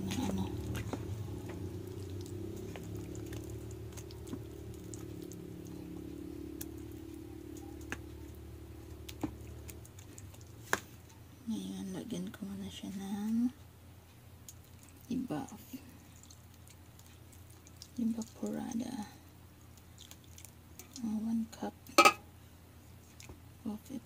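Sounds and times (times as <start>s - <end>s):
steady low hum: 0.0s - 14.5s.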